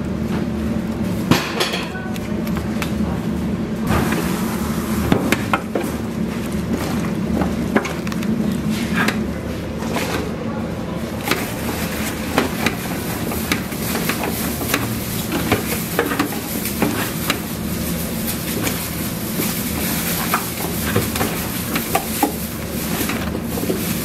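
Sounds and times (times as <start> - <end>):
hands slapping cabbage in metal basin: 11.2 - 24.0.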